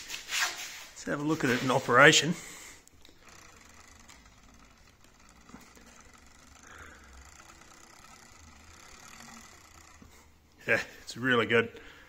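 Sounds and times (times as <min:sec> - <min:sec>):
electric motor running: 0:01.4 - 0:11.0.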